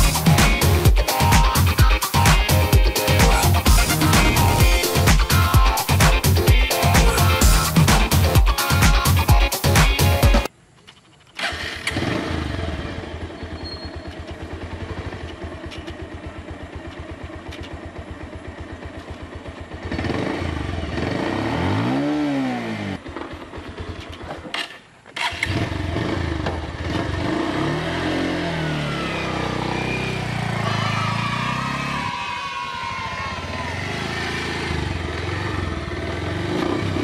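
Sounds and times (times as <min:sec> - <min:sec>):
motorcycle engine revving: 0:00.0 - 0:08.2, 0:11.3 - 0:37.0
motorcycle engine idling: 0:10.7 - 0:21.4, 0:22.6 - 0:37.0.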